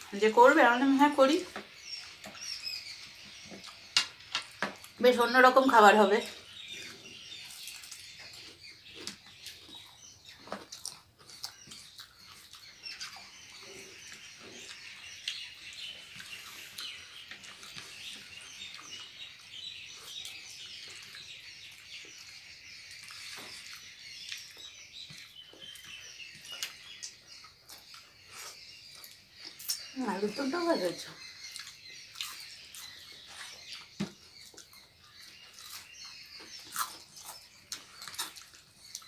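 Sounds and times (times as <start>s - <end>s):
small birds chirping: 0.0s - 39.0s
chewing clicks and smacks: 6.7s - 29.9s, 31.4s - 39.0s.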